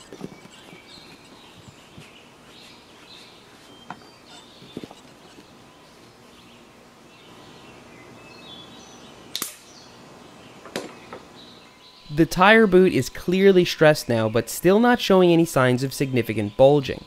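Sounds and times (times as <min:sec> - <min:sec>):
air pop from tire valve: 0:09.4 - 0:09.6.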